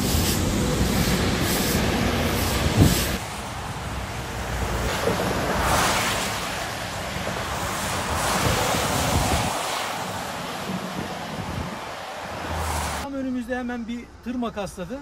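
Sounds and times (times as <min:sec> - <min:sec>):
tyres hissing on wet road: 0:00.0 - 0:13.1
wind on microphone: 0:00.2 - 0:03.2, 0:04.7 - 0:13.0.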